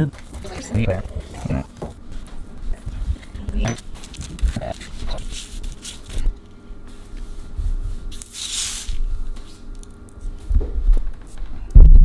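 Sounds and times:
hands rustling on paper: 2.2s - 10.4s.

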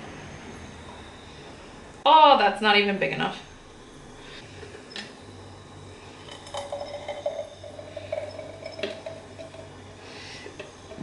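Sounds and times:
faint steady tone: 3.2s - 11.0s
jug knocking against glass jar: 6.4s - 9.6s.

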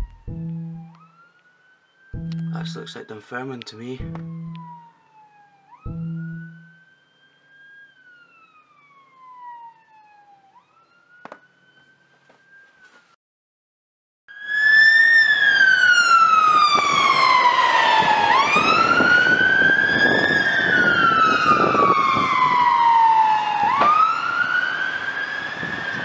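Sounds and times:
low rumble: 0.0s - 0.9s
emergency vehicle siren wailing: 0.0s - 13.2s, 14.3s - 26.0s.

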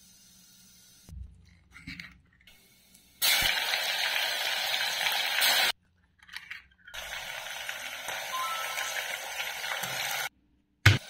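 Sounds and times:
hot oil sizzling: 3.2s - 5.8s, 7.0s - 10.3s.

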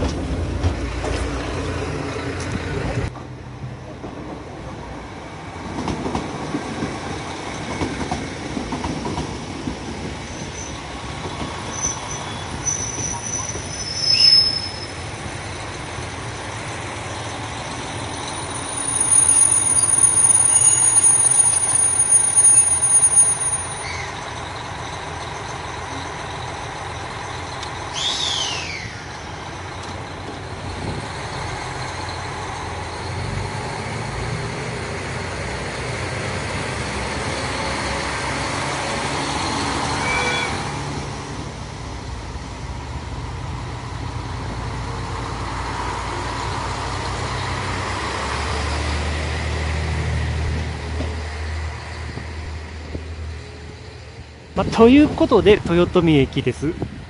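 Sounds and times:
train running on track: 0.0s - 57.0s
train wheel squeal: 10.2s - 10.9s, 11.6s - 15.8s, 16.4s - 33.8s, 39.2s - 40.8s.

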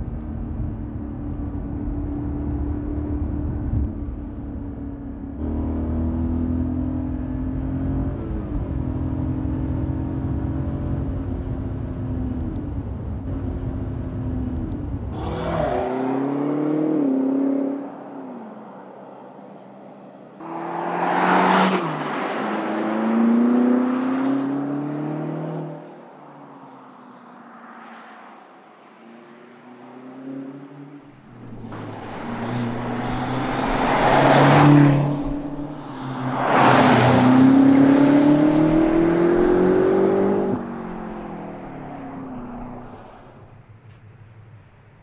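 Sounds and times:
car engine accelerating past: 20.4s - 26.0s, 29.0s - 43.5s.

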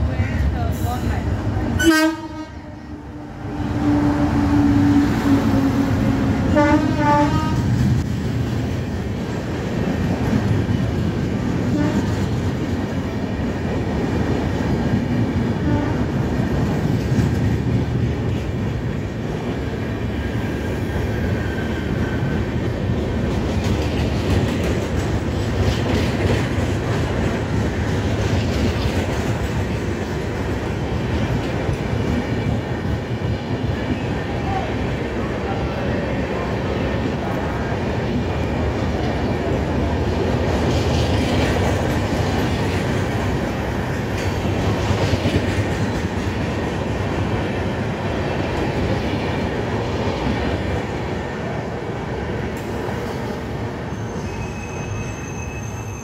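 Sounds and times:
train wheels rumbling and clattering: 0.0s - 56.0s
train horn blasts: 1.8s - 7.8s, 11.7s - 12.2s, 15.6s - 16.1s.

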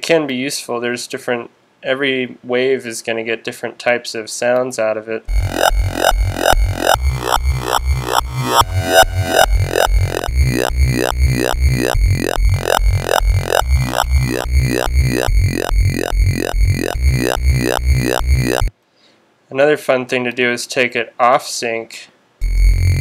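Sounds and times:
synth bass looping notes: 5.3s - 18.7s, 22.4s - 23.0s.

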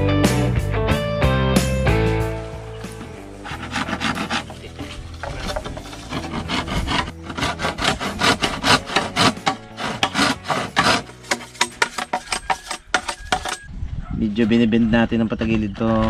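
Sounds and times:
saw rasping through bamboo: 2.9s - 13.7s.

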